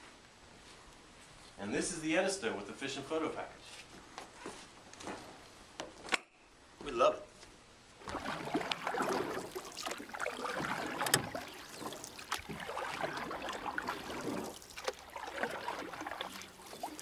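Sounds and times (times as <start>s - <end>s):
water splashing and sloshing: 8.0s - 17.0s.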